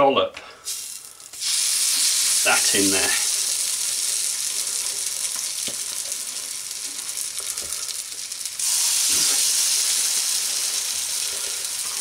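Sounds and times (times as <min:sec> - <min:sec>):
food sizzling in a frying pan: 0:00.6 - 0:12.0.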